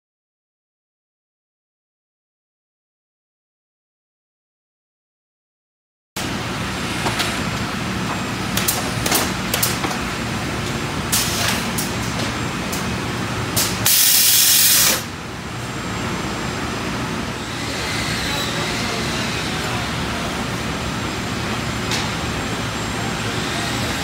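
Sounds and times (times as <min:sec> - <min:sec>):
shop machine noise: 0:06.2 - 0:24.0
compressed air hiss: 0:13.7 - 0:15.1.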